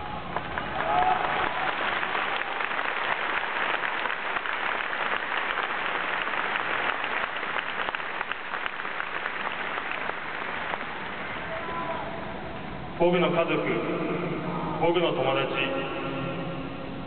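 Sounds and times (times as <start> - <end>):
crowd applauding: 0.3 - 11.8.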